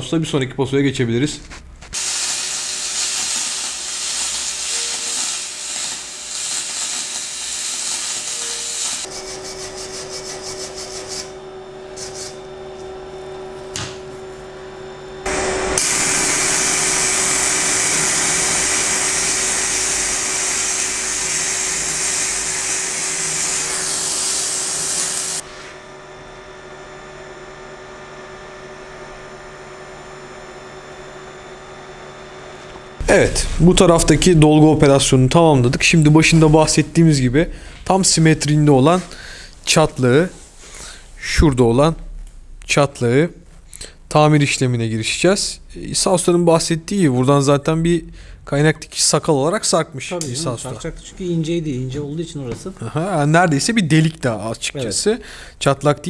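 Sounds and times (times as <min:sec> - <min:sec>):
welding arc hissing: 0:01.5 - 0:12.5, 0:15.2 - 0:25.8, 0:33.0 - 0:41.4
low steady hum: 0:25.4 - 0:49.0.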